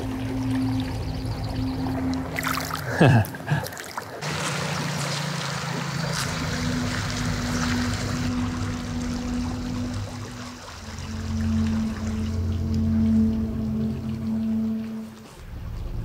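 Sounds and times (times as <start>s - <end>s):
soft background music: 0.0s - 3.2s, 4.7s - 16.0s
stream running: 0.0s - 16.0s
splash in shallow water: 2.3s - 12.1s.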